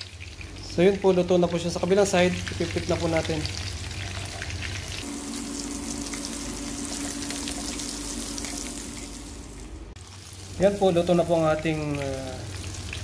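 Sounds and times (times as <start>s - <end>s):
fish sizzling in hot oil: 0.0s - 13.0s
low hum: 3.8s - 10.0s.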